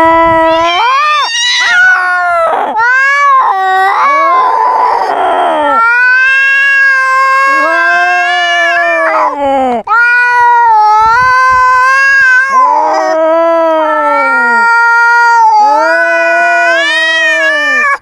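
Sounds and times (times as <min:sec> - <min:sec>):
cat yowling: 0:00.0 - 0:18.0.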